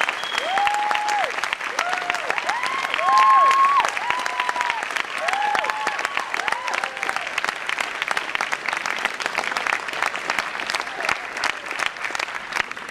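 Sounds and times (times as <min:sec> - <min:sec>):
brief cheer: 0:00.0 - 0:07.3
audience applauding: 0:00.0 - 0:12.9.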